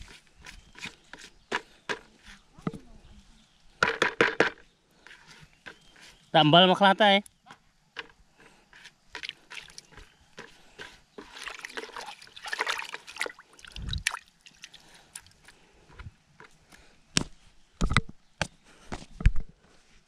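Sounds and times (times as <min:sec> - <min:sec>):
water sloshing in a bucket: 0:09.1 - 0:15.6.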